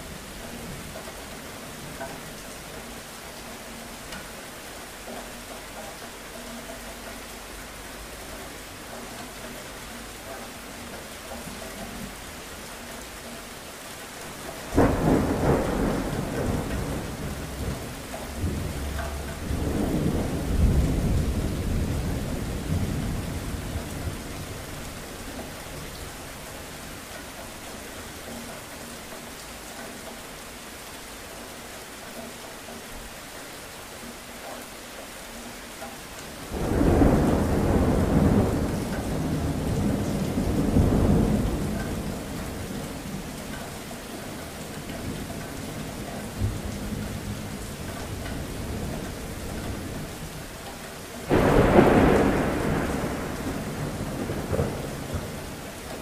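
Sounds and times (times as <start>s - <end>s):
steady rain: 0.0s - 56.0s
thunder rolling: 14.6s - 24.8s, 36.5s - 43.3s, 51.2s - 56.0s.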